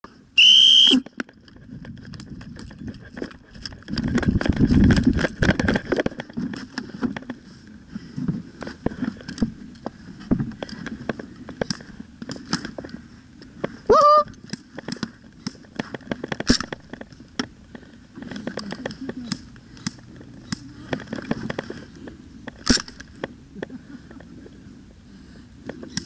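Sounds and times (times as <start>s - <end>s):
camera handling noise: 14.4s - 23.4s.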